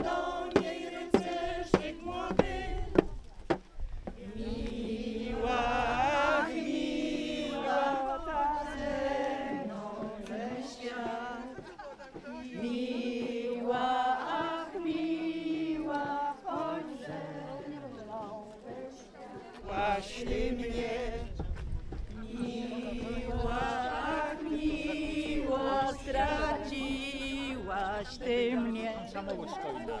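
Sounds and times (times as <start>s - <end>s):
small drum beating: 0.0s - 4.2s
women singing folk song: 0.0s - 30.0s.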